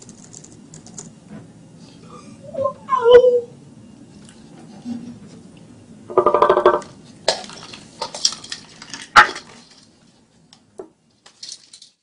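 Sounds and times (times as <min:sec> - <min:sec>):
hard objects clattering: 0:06.1 - 0:10.2, 0:10.8 - 0:12.0.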